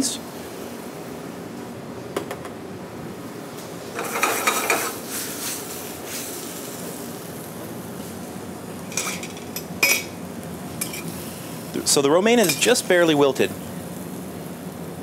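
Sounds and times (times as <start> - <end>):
kitchen background noise: 3.5 - 13.6.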